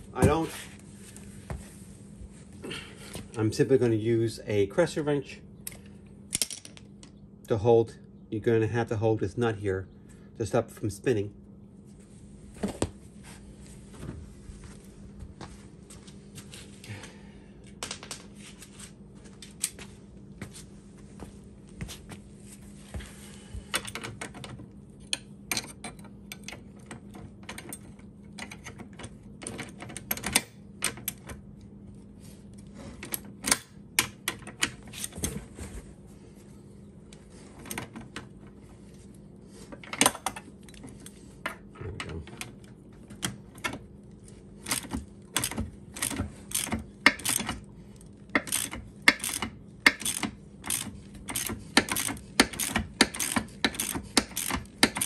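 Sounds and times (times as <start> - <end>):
ratchet clicking: 44.7 - 47.6, 48.3 - 55.0
wrenches clinking on metal: 44.7 - 47.6, 48.2 - 55.0.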